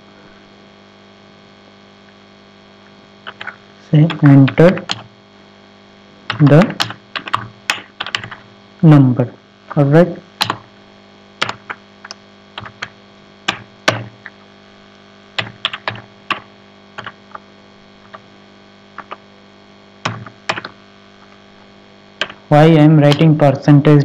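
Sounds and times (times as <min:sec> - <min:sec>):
low electrical hum: 0:00.0 - 0:24.0
keyboard typing clicks: 0:03.3 - 0:05.1, 0:06.3 - 0:08.4, 0:10.4 - 0:10.7, 0:11.4 - 0:14.4, 0:15.4 - 0:17.2, 0:19.0 - 0:19.2, 0:20.1 - 0:20.8, 0:22.2 - 0:22.4.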